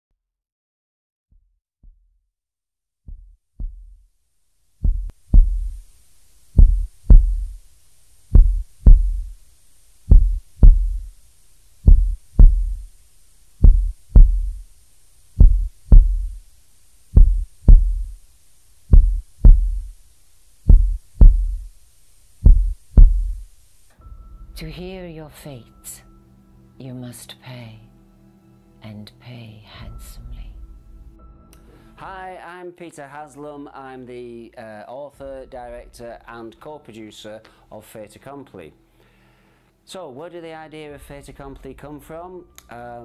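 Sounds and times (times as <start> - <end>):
heartbeat thumps: 3.1 - 4.0, 4.8 - 5.9, 6.6 - 7.6, 8.3 - 9.4, 10.1 - 11.2, 11.8 - 12.9, 13.6 - 14.7, 15.4 - 16.4, 17.1 - 18.2, 18.9 - 20.0, 20.6 - 21.7, 22.4 - 23.5
faint steady hiss: 4.2 - 43.0.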